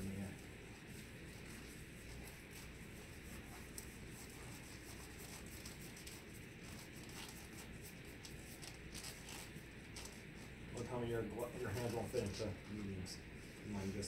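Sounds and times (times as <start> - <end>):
low room hum: 0.0 - 14.0
glove rustling and crackling: 0.8 - 10.6.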